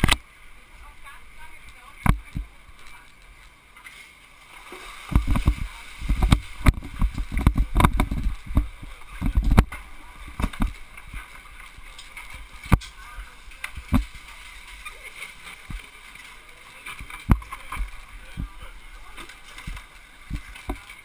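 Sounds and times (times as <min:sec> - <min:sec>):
wind buffeting microphone: 0:05.1 - 0:09.7.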